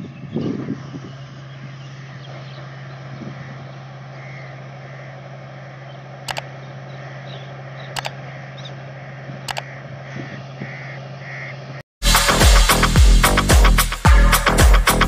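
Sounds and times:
combine harvester engine humming: 0.0s - 11.8s
sharp clicks: 6.2s - 6.5s, 7.9s - 8.2s, 9.4s - 9.7s.

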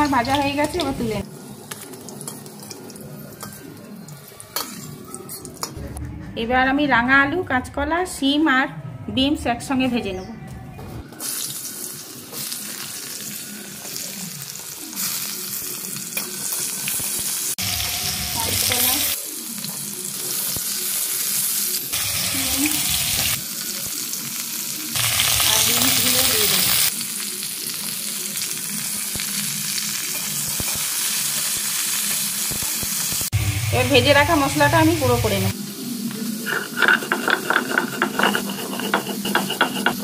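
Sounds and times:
food sizzling in hot oil: 0.0s - 5.0s, 11.1s - 40.0s
spatula stirring in a wok: 36.4s - 40.0s.

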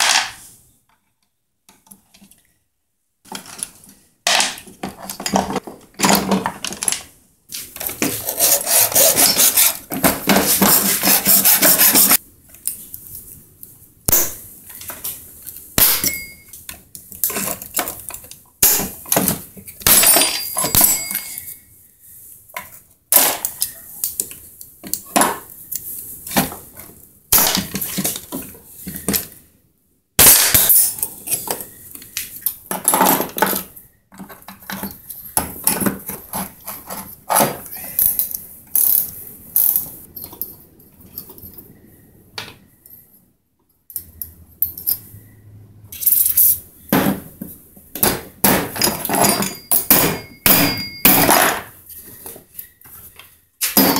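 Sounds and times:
metal parts clattering on a workbench: 0.0s - 0.4s, 3.3s - 7.2s, 15.8s - 21.6s, 30.2s - 41.6s, 46.0s - 53.0s, 53.6s - 53.9s
hammer strikes: 15.8s - 16.5s, 48.0s - 51.7s.

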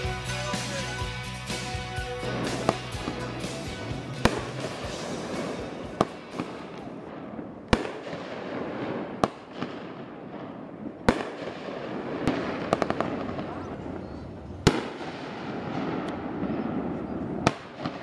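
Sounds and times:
fireworks crackling hiss: 0.0s - 9.8s
fireworks bangs: 0.0s - 18.0s.

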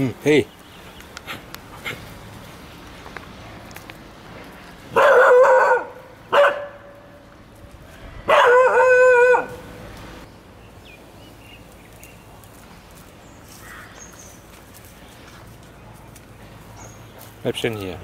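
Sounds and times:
dog giving pitched warning calls: 4.9s - 7.0s, 8.3s - 9.8s.

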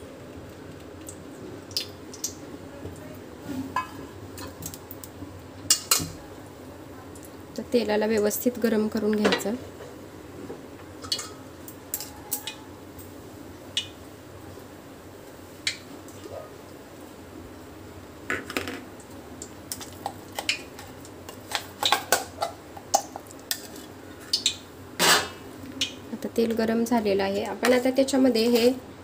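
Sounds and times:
faint steady hiss: 0.0s - 29.0s
pots and utensils clinking: 3.6s - 4.7s, 11.0s - 12.6s.

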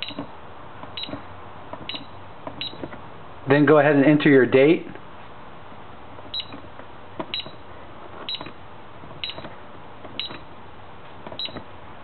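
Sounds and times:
short keypad beeps: 1.0s - 1.2s, 1.9s - 2.8s, 6.3s - 6.6s, 7.3s - 7.6s, 9.2s - 9.5s, 10.2s - 10.5s, 11.4s - 11.6s.

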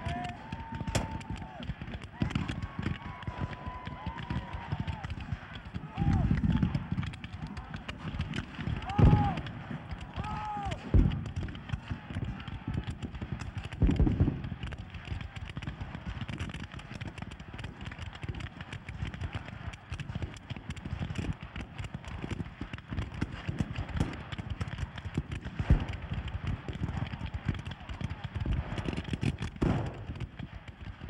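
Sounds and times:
muskets firing crackle: 0.0s - 31.0s
loud gun booms: 0.8s - 1.6s, 8.6s - 9.8s, 29.6s - 30.2s.

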